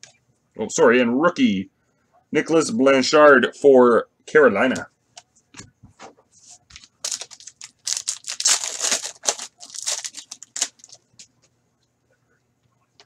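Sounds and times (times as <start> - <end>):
foil wrapper tearing and crinkling: 6.8 - 11.3.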